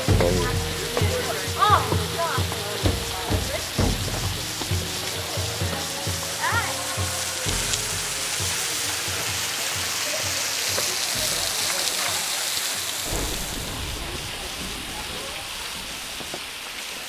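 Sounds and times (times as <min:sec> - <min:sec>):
low rumbling: 0:00.0 - 0:05.6, 0:07.1 - 0:09.3, 0:11.2 - 0:11.8, 0:13.0 - 0:17.0
water drops pattering on rock: 0:00.0 - 0:17.0.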